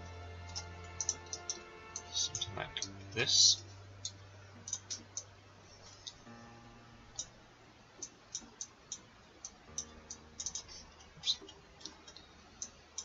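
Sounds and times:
computer mouse clicking: 8.0s - 13.0s.

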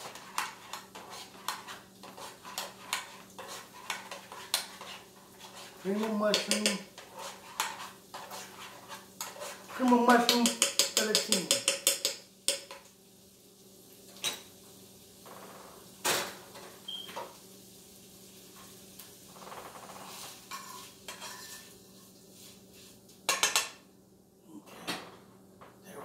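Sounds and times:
fork clinking and scraping in pan: 0.0s - 12.8s, 20.0s - 21.8s, 23.3s - 23.8s
cookware knocking: 6.0s - 6.9s, 9.9s - 12.8s, 23.3s - 23.8s.

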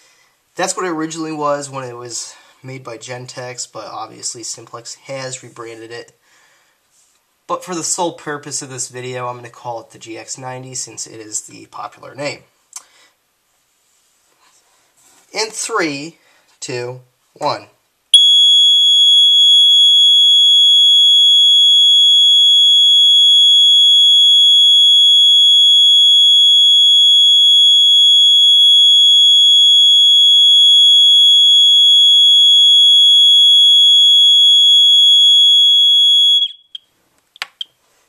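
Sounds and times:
fire alarm horn tone: 18.2s - 36.8s.

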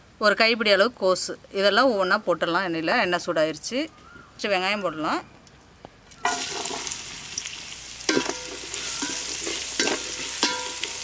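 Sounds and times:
onion sizzling in hot oil: 6.2s - 11.0s
spatula clanking against pan: 8.1s - 11.0s.

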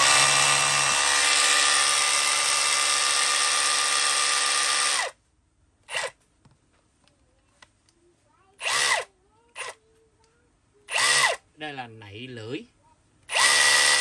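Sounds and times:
rotary hammer whining: 0.0s - 5.2s, 8.6s - 9.8s, 10.9s - 11.4s, 13.3s - 14.0s.

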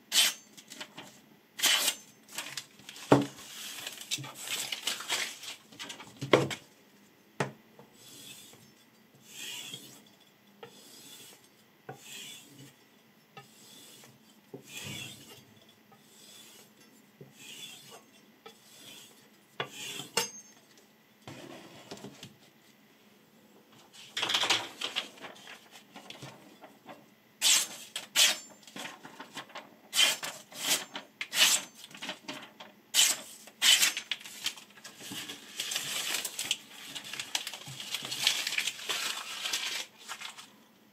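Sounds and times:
knife slicing paper: 1.6s - 2.5s, 27.4s - 28.5s, 29.9s - 31.7s, 33.0s - 34.6s, 35.3s - 40.5s.

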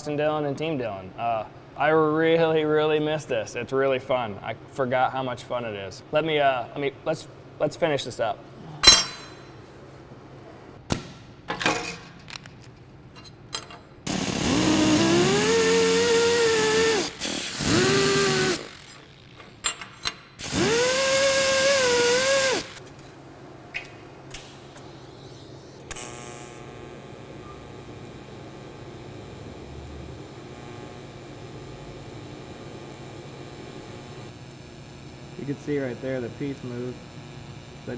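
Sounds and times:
welding arc hum: 12.2s - 37.9s
die grinder whining: 14.1s - 19.4s, 20.4s - 22.8s.

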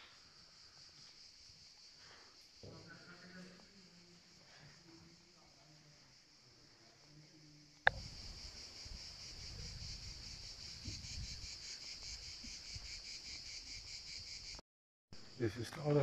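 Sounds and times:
insects chirring: 0.0s - 14.6s, 15.2s - 16.0s
wind rumbling on microphone: 7.9s - 13.0s.

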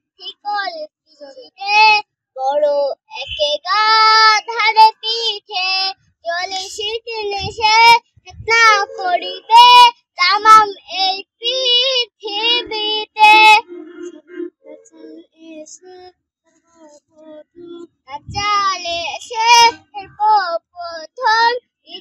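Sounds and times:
girl singing solo: 6.4s - 10.7s, 17.3s - 20.5s.

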